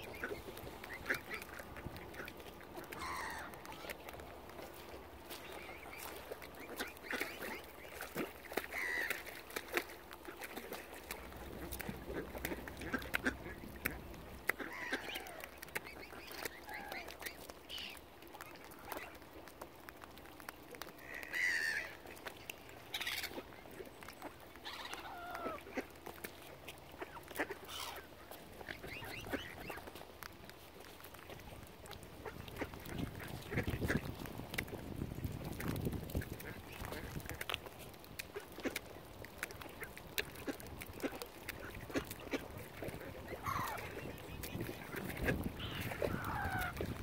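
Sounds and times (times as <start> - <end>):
mallard ducks quacking: 0.0 - 4.0, 4.7 - 19.2, 21.0 - 22.2, 22.8 - 26.0, 26.9 - 30.0, 31.9 - 34.2, 38.2 - 47.0.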